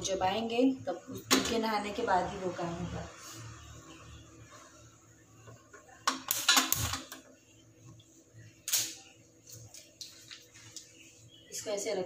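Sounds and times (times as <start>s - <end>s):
kitchen items clattering and rustling: 6.0s - 7.2s.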